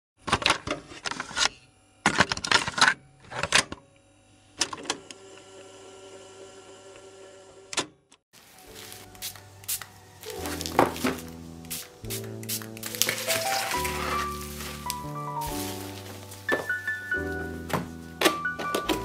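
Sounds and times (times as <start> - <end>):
soft background music: 8.4 - 19.0.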